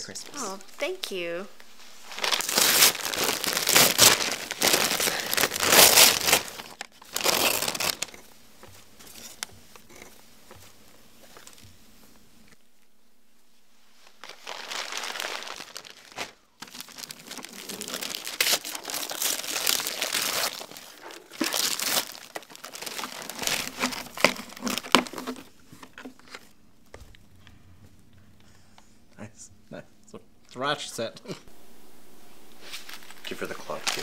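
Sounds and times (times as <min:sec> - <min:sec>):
wrapping paper tearing and crumpling: 0:01.8 - 0:08.2, 0:14.0 - 0:25.5, 0:32.5 - 0:34.0.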